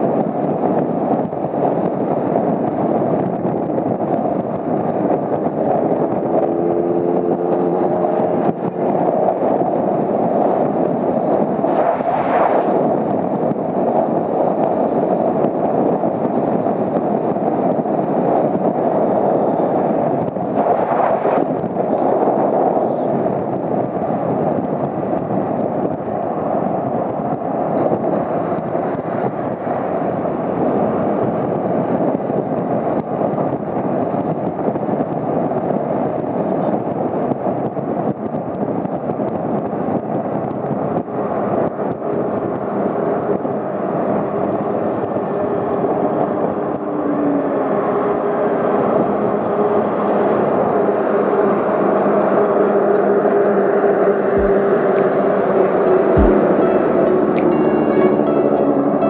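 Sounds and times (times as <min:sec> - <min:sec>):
road and wind noise: 0:00.0 - 0:59.0
motorcycle engine: 0:05.8 - 0:09.0.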